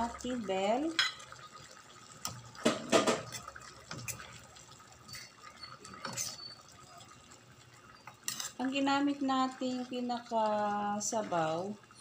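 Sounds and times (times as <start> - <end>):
stew simmering: 0.0 - 12.0
ladle clattering: 2.3 - 4.4, 5.0 - 7.1
metal ladle scraping a pan: 5.1 - 6.6, 8.2 - 8.6.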